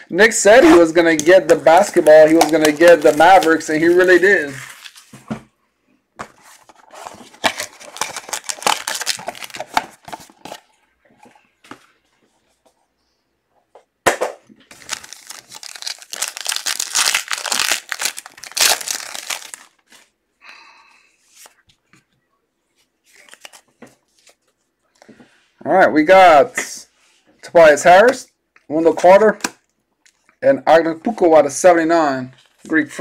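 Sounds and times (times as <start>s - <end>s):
foil wrapping tearing and crinkling: 7.0s - 10.0s, 14.7s - 19.8s.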